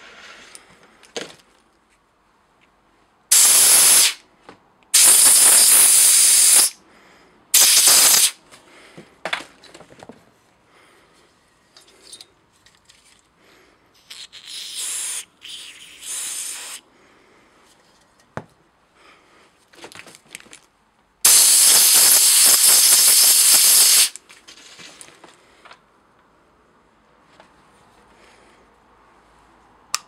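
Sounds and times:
spray can hissing: 3.3s - 4.2s, 5.0s - 6.8s, 7.6s - 8.4s, 14.1s - 16.8s, 21.2s - 24.2s.

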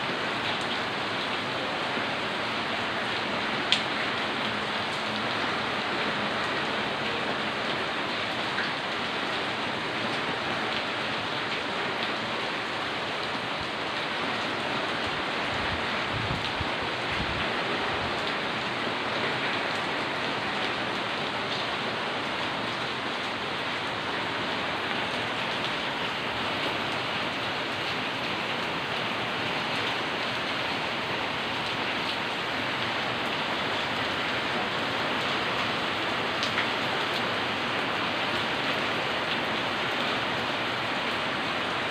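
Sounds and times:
rain hissing: 0.0s - 41.9s
raindrop ticks: 3.7s - 5.3s, 36.4s - 37.2s.

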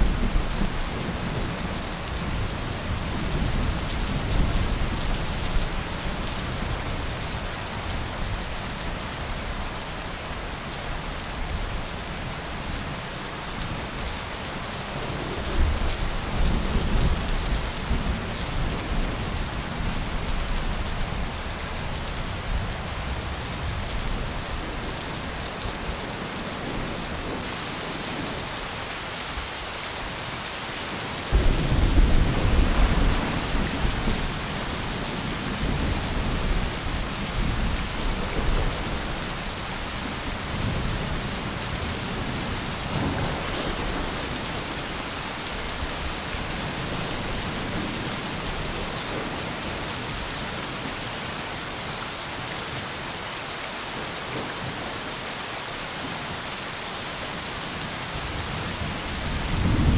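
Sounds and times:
steady rain: 0.0s - 59.9s
thunder rumbling: 31.3s - 39.2s, 59.2s - 59.9s.

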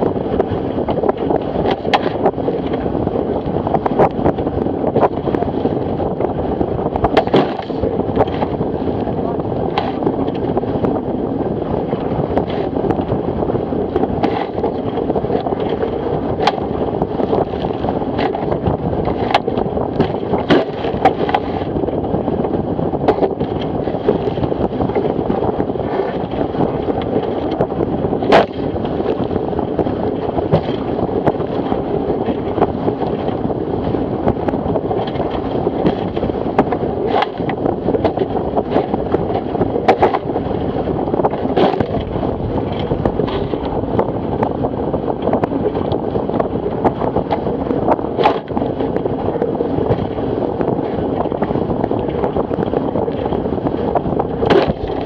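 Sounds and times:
hull slapping on waves: 0.0s - 55.0s
water rushing along hull: 0.0s - 55.0s
wind buffeting microphone: 0.0s - 55.0s.

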